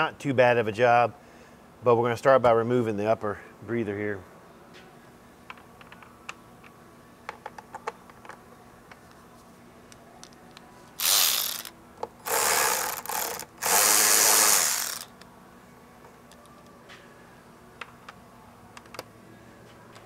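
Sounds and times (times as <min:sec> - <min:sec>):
power ratchet running: 0:11.0 - 0:15.2.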